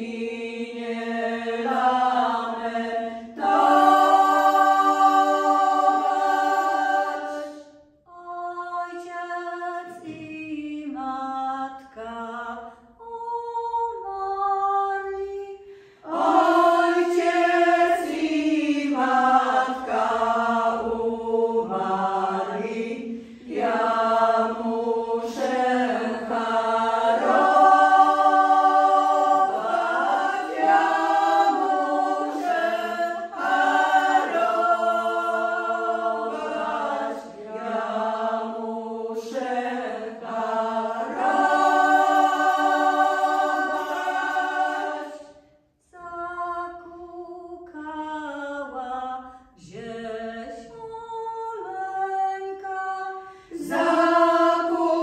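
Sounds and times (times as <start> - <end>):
women singing a cappella: 0.0 - 55.0.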